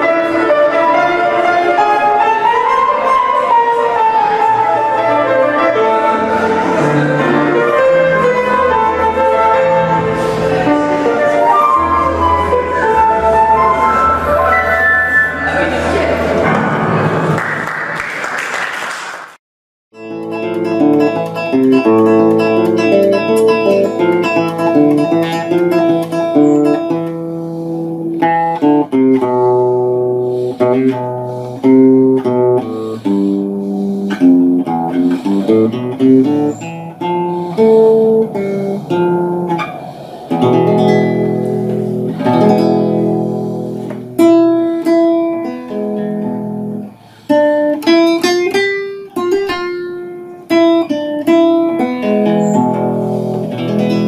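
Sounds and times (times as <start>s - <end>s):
guitar playing: 0.0s - 17.4s, 20.0s - 54.0s.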